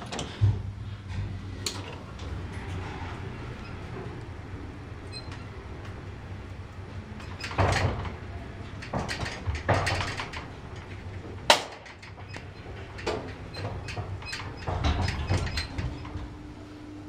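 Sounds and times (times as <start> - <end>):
metal lattice gate rattling and scraping: 7.2 - 16.3.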